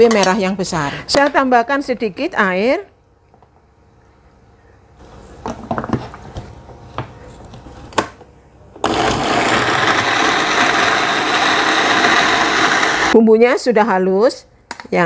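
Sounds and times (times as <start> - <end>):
blender grinding: 8.8 - 13.2.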